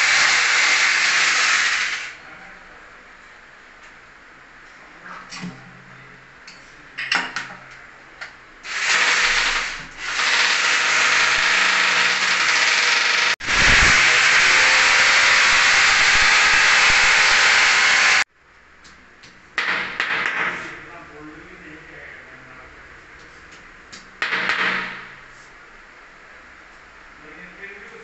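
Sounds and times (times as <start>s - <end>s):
electric drill boring into tile: 0.0s - 2.1s, 8.7s - 18.3s
drill clicks: 8.7s - 18.2s.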